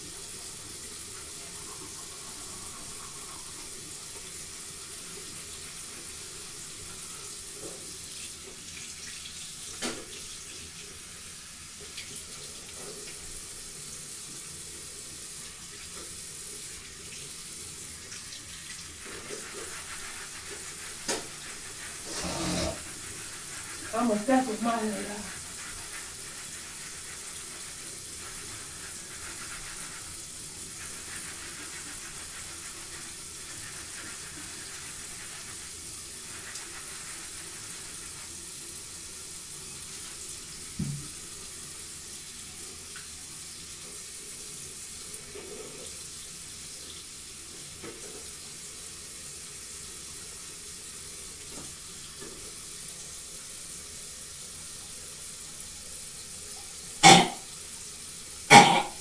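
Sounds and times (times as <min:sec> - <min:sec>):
sink tap running: 0:18.1 - 0:32.7, 0:57.0 - 0:57.5, 0:58.5 - 0:59.0.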